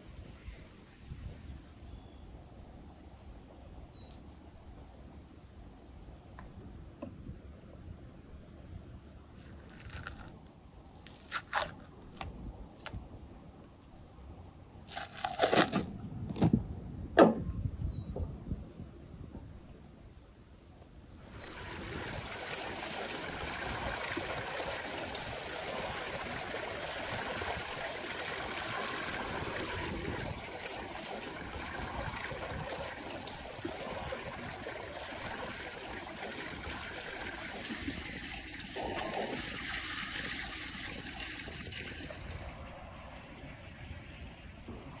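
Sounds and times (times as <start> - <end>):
water pouring and splashing: 9.4 - 10.4, 11.0 - 13.0, 14.9 - 16.5, 21.3 - 45.0.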